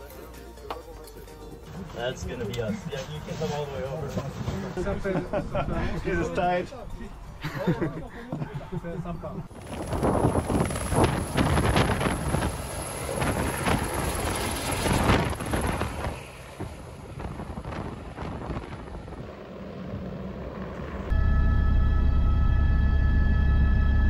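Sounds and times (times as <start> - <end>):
helicopter rotor and engine: 8.3 - 24.0
wind buffeting microphone: 9.4 - 20.3.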